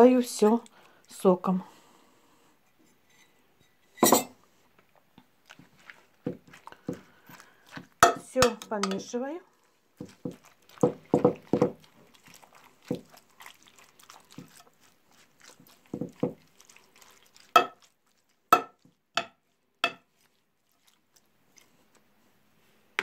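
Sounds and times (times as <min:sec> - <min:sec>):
spoon stirring wet food: 0:00.0 - 0:02.0, 0:02.8 - 0:23.0
spoon knocking on glass dish: 0:08.0 - 0:09.0, 0:10.8 - 0:11.8, 0:17.6 - 0:17.8, 0:18.5 - 0:20.0.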